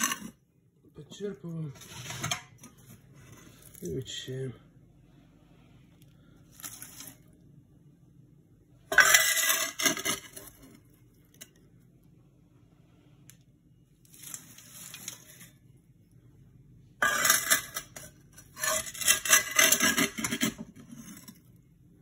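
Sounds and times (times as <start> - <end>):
metal scoop scraping ash: 0.0 - 0.4, 1.8 - 2.5, 8.9 - 10.7, 17.0 - 21.4.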